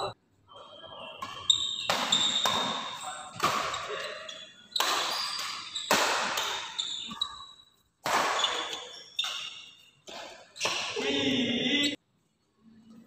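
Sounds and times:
badminton racket hitting shuttlecock: 1.2s - 7.2s, 8.0s - 11.0s.

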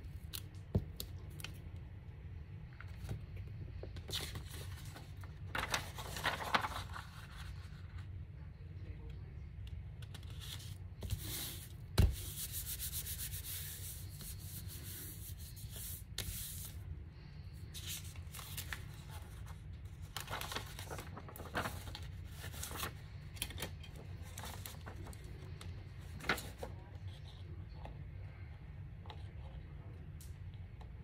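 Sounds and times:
hands rubbing paper: 5.6s - 7.7s, 11.0s - 16.8s.

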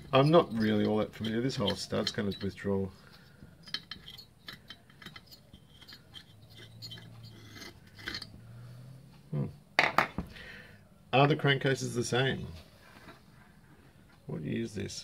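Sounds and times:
metal thread scraping: 0.0s - 9.0s
low steady hum: 0.0s - 15.0s.

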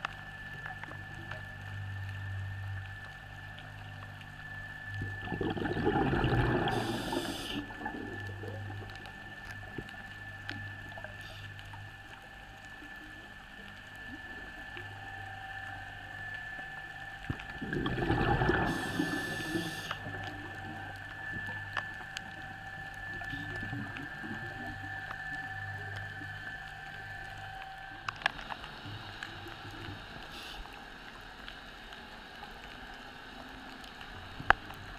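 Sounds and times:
steady faint whine: 0.0s - 34.9s
regulator exhalation bubbling: 5.2s - 8.8s, 17.4s - 20.2s.

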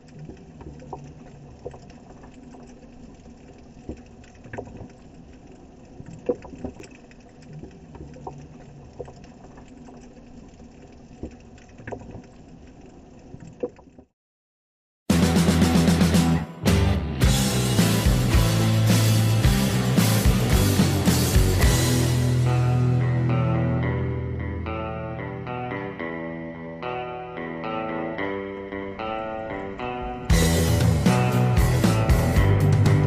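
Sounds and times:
sea water lapping and gurgling: 0.0s - 14.1s
loud rock music: 15.1s - 33.0s.

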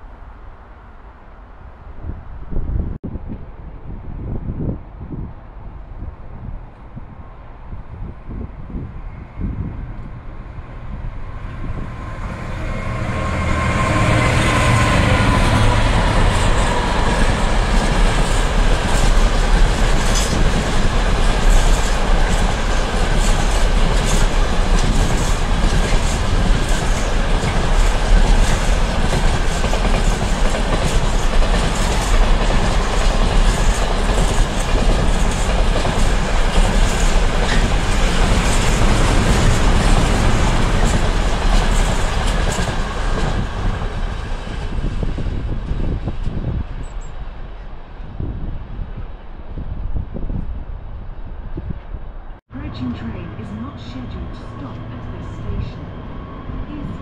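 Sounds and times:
freight wagons rumbling: 11.7s - 44.4s.

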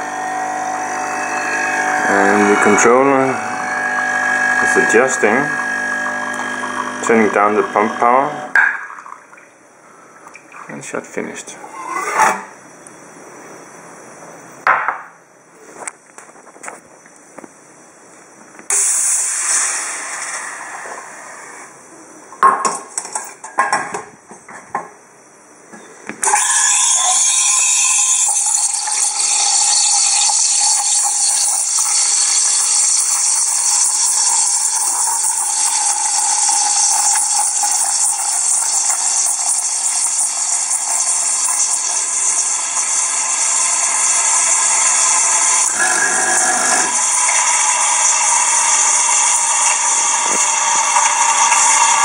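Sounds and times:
steam wand hissing: 0.0s - 8.5s, 18.7s - 21.8s, 26.2s - 52.0s.

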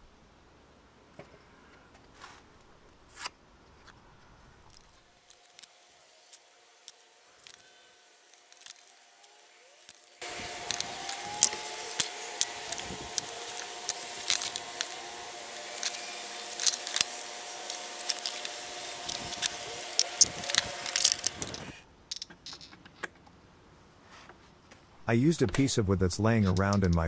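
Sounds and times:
faint steady hum: 0.0s - 27.0s
steel square clicks: 8.3s - 15.0s, 15.7s - 23.3s.

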